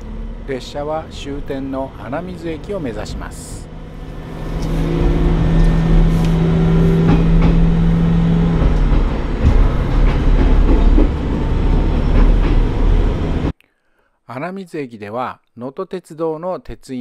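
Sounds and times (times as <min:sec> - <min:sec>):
railcar rumble and hum: 0:00.0 - 0:13.5
wheels clicking over rail joints: 0:03.7 - 0:13.5.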